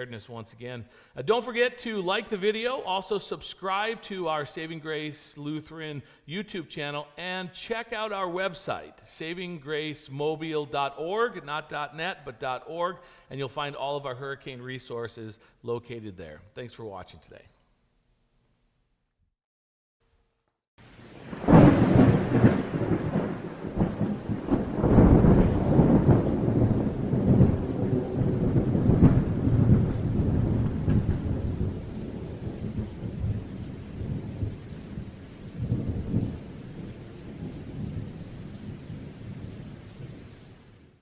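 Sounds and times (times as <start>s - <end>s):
steady rain: 20.8s - 41.0s
rumbling thunder: 21.1s - 41.0s.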